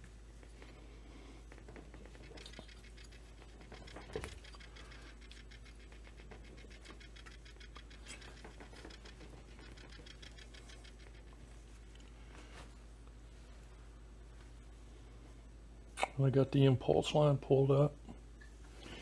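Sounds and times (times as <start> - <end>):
small plastic clicks and scrapes: 1.6 - 11.4.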